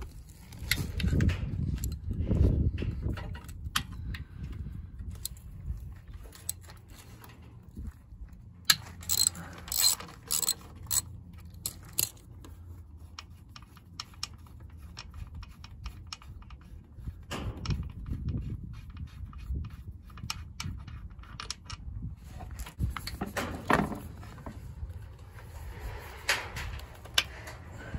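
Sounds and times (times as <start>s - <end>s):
ratchet wrench clicking: 8.7s - 12.2s.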